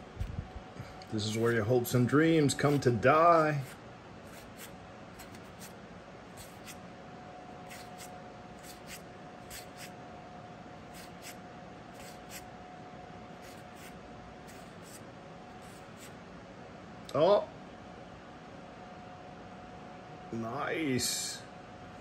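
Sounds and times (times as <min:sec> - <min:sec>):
playing cards flicking and scraping: 0:02.5 - 0:03.0, 0:03.6 - 0:05.8, 0:06.4 - 0:06.8, 0:07.7 - 0:09.9, 0:10.9 - 0:11.4, 0:12.0 - 0:12.5, 0:13.4 - 0:15.0, 0:15.6 - 0:16.2.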